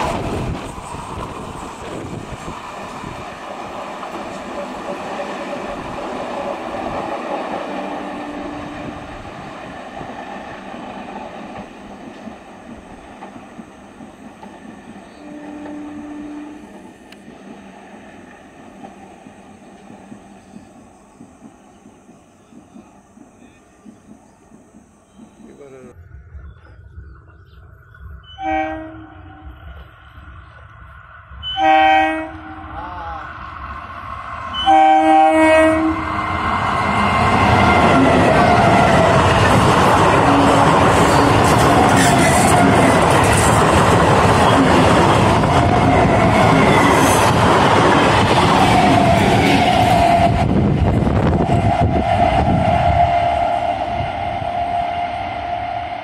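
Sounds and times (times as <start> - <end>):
wind on microphone: 0.0 - 4.6, 8.4 - 10.4, 35.8 - 56.0
electric train running on track: 0.0 - 56.0
train horn blasts: 7.6 - 9.1, 15.1 - 16.8, 28.3 - 29.6, 31.4 - 33.0, 34.5 - 36.1.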